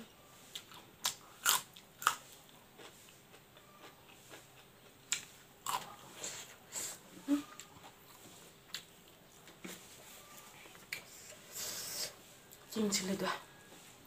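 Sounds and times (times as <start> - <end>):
chewing food: 0.5 - 6.6.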